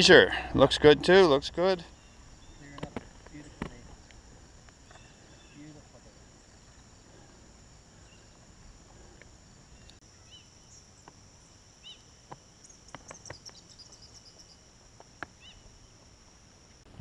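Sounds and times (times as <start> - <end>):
insect drone: 0.0 - 17.0
bird chirps: 1.8 - 3.6, 4.8 - 5.8, 9.7 - 14.6, 15.4 - 15.7.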